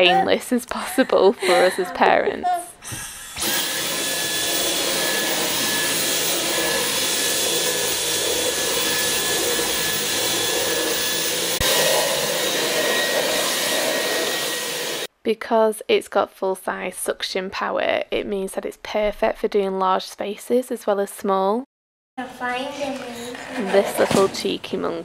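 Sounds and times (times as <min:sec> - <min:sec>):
vacuum cleaner running: 0:02.8 - 0:15.1.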